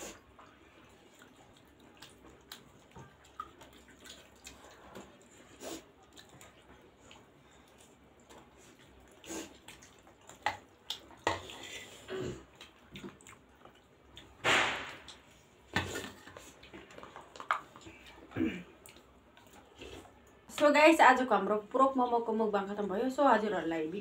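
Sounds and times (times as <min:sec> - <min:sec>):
slurping: 0:00.0 - 0:14.4
wet chewing: 0:00.0 - 0:14.4, 0:15.0 - 0:20.5.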